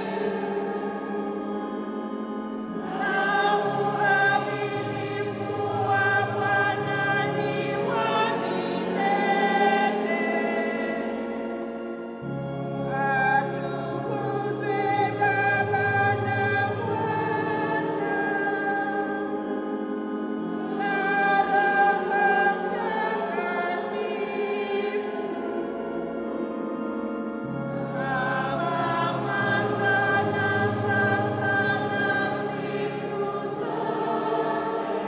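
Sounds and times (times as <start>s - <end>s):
choir singing a hymn: 0.0s - 35.0s
organ: 0.0s - 35.0s.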